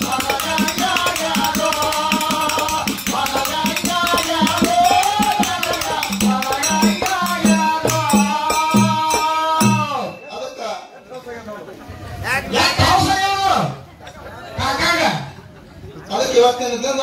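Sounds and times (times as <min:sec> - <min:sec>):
person singing: 0:00.0 - 0:10.2
drum beats: 0:00.0 - 0:10.6
hand cymbals beating: 0:00.0 - 0:10.7.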